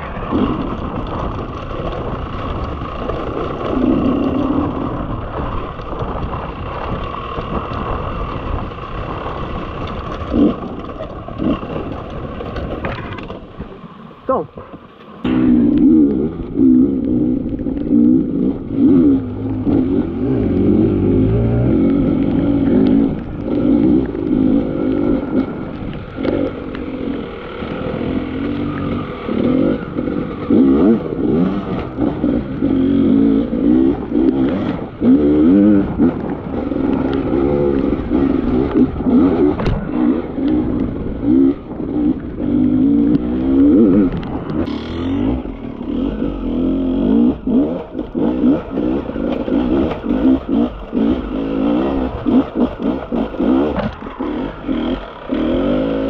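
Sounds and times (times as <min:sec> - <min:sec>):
rocks knocking against bike: 0:05.3 - 0:13.8
dirt bike engine revving: 0:15.3 - 0:56.0.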